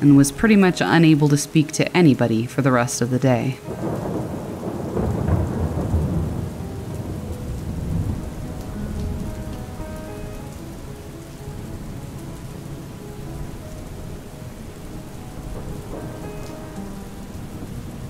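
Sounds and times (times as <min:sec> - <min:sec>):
steady rain falling: 0:00.0 - 0:18.0
rolling thunder rumble: 0:03.6 - 0:18.0.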